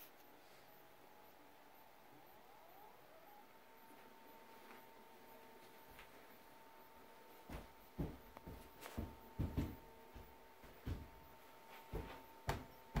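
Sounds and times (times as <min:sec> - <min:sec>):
faint steady hum: 0:00.0 - 0:13.0
soft thumps and knocks: 0:07.4 - 0:13.0.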